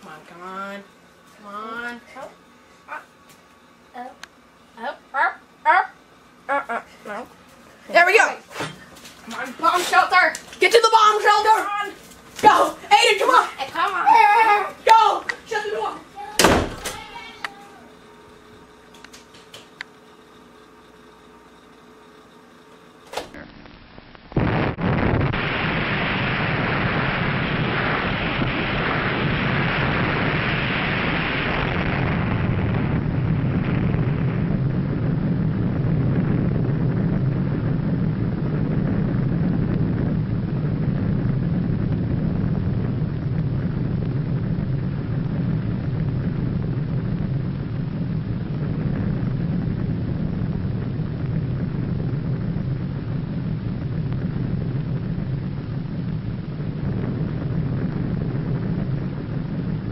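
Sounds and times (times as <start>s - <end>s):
huge explosion rumble: 24.4s - 59.9s.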